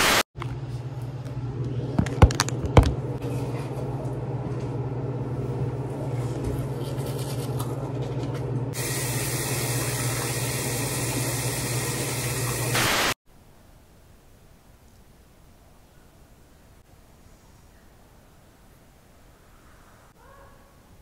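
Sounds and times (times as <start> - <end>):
loud hiss: 12.7 - 13.2.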